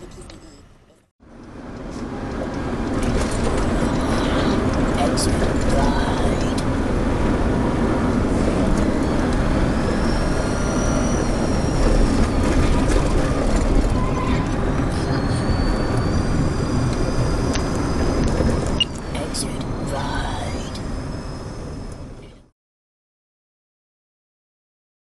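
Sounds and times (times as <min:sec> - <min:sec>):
vehicle engine and tyre rumble: 0:00.0 - 0:22.5
faint high whine: 0:07.9 - 0:22.5.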